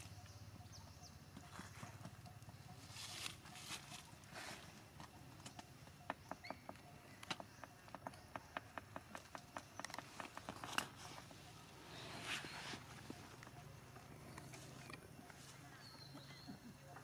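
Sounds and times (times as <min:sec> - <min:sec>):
dry leaves crackling: 0:02.8 - 0:04.7
soft rustle: 0:02.8 - 0:05.1, 0:10.0 - 0:13.6.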